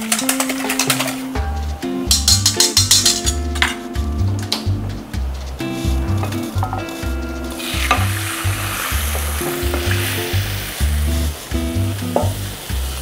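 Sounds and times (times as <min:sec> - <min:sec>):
background music with bass beat: 0:00.6 - 0:13.0
egg sizzling in frying pan: 0:07.0 - 0:13.0.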